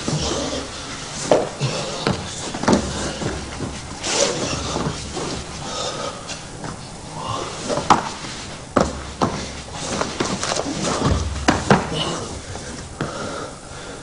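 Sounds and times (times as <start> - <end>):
bodies thumping on mat: 0.0 - 5.6, 7.7 - 13.2
heavy breathing: 0.0 - 8.6, 9.3 - 14.0
scuffling: 0.0 - 13.2.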